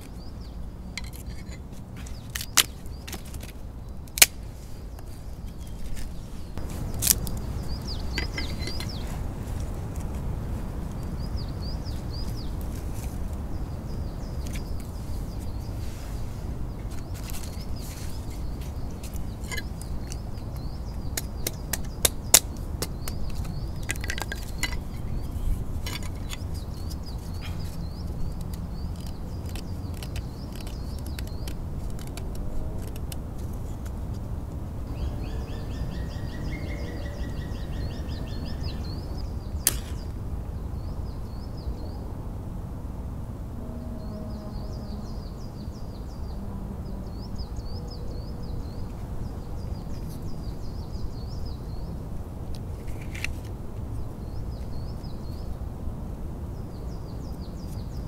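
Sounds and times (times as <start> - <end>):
songbirds singing: 0.0 - 42.3, 43.6 - 58.0
sticks clicking and snapping: 2.1 - 4.4, 19.0 - 25.1, 28.2 - 34.0
bird trill: 7.6 - 9.1, 34.9 - 40.0.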